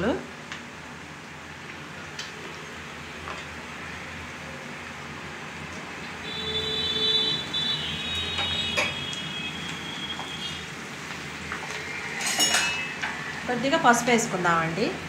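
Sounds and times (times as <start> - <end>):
vegetables sizzling in hot oil: 7.4 - 15.0.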